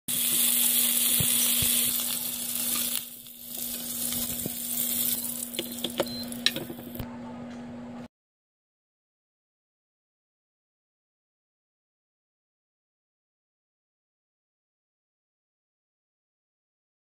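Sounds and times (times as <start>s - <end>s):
steaks sizzling in oil: 0.1s - 7.0s.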